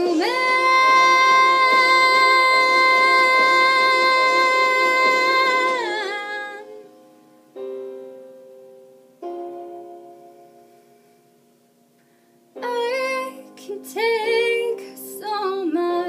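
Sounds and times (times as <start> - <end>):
piano chord: 0.0 - 11.9.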